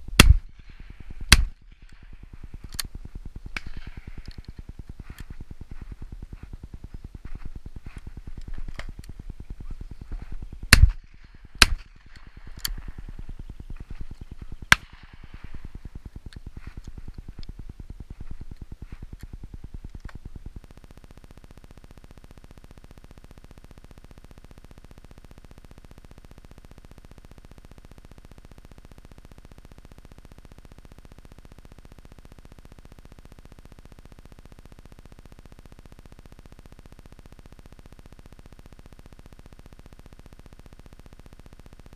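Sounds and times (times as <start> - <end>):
electronic hum and hiss: 0.0 - 41.9
shotgun shots: 0.2 - 0.5, 10.7 - 11.0.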